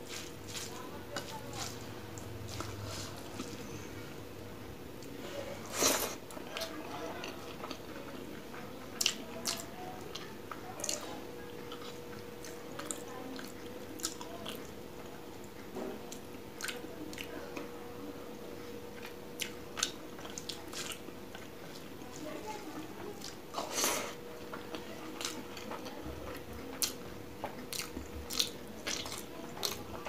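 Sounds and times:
fingers squishing rice: 0:00.0 - 0:03.7
person chewing: 0:00.0 - 0:04.0, 0:05.0 - 0:14.7, 0:15.4 - 0:17.3, 0:18.9 - 0:22.0, 0:23.2 - 0:30.0.

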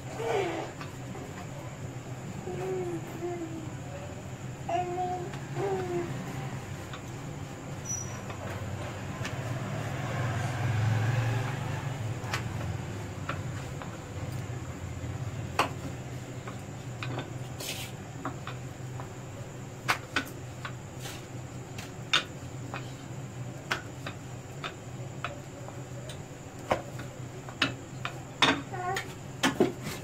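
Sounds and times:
steady low hum: 0:00.0 - 0:30.0
rolling pin rolling dough: 0:04.8 - 0:30.0.

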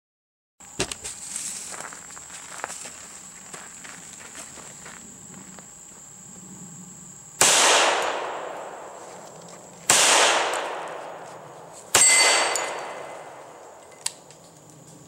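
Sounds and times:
pistol shots echoing: 0:07.4 - 0:09.0, 0:09.9 - 0:13.8
steel target plate ringing: 0:11.9 - 0:14.1.

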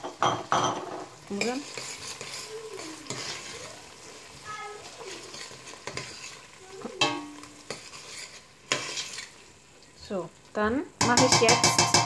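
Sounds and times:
sauce sizzling in a pot: 0:00.0 - 0:12.0
spoon knocking against pot: 0:07.0 - 0:07.4, 0:11.0 - 0:12.0.

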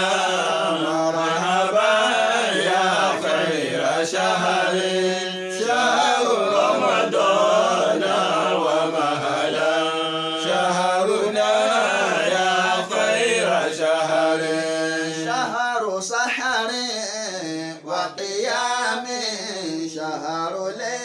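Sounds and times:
voices chanting: 0:00.0 - 0:15.6.

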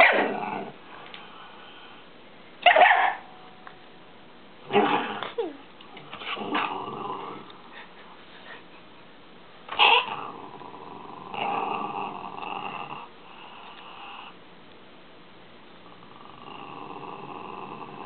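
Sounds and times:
dog outbursts: 0:00.0 - 0:00.3, 0:02.6 - 0:03.3, 0:09.7 - 0:10.2
small dog growling: 0:00.0 - 0:00.8, 0:04.6 - 0:07.9, 0:09.8 - 0:13.1, 0:15.9 - 0:18.0.

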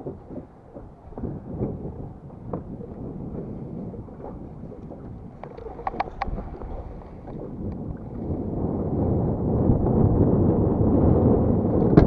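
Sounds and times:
wind buffeting microphone: 0:00.0 - 0:12.0
light clicks: 0:04.8 - 0:06.6.

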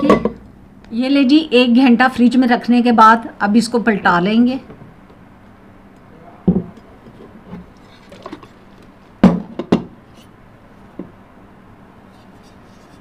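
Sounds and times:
plate knocking on table: 0:06.5 - 0:06.8, 0:09.2 - 0:09.9.

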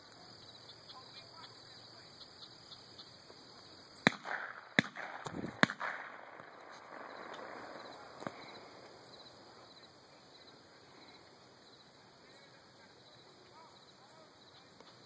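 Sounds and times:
shotgun shots echoing: 0:04.0 - 0:08.8.

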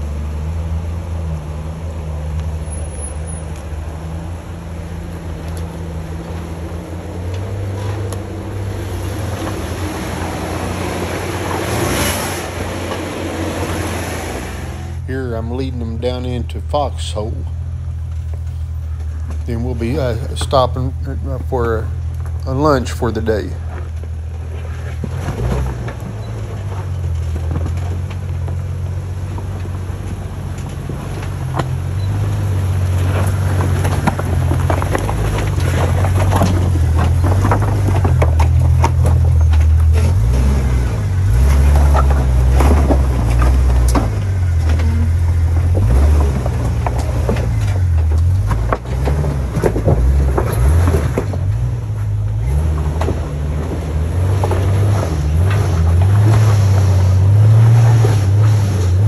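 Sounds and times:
off-road vehicle rumbling: 0:00.0 - 0:59.0
vehicle knocking and rattling: 0:15.3 - 0:59.0.

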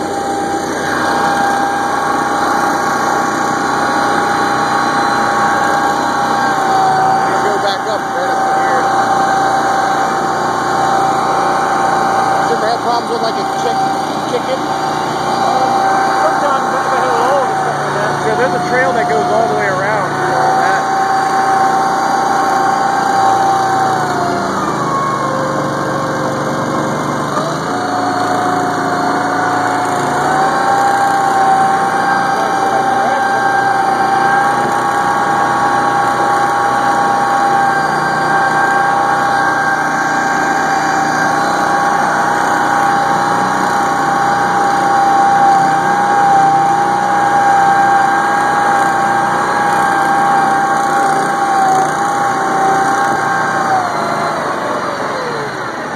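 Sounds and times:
high steady whine: 0:00.0 - 0:55.9
vehicle engine running: 0:00.0 - 0:55.9
vehicle driving through water: 0:10.8 - 0:46.1.

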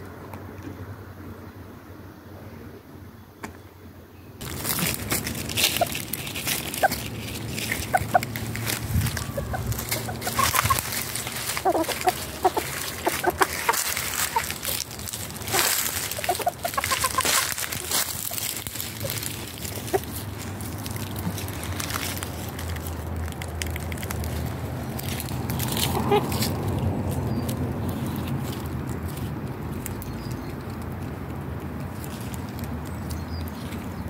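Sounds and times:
chickens clucking: 0:04.4 - 0:24.1, 0:24.8 - 0:29.2
steady rushing background noise: 0:04.4 - 0:34.0.

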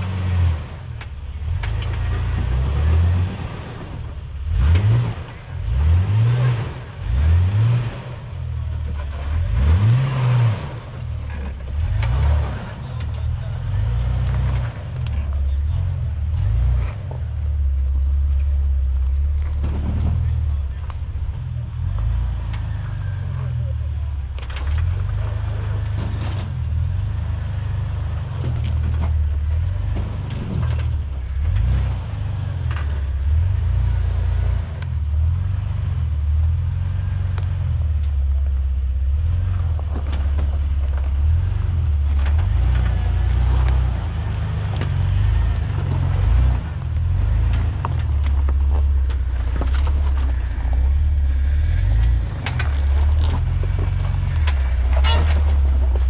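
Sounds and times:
engine running at low revs: 0:00.0 - 0:56.0
tyres knocking and scraping on rock: 0:39.4 - 0:56.0.

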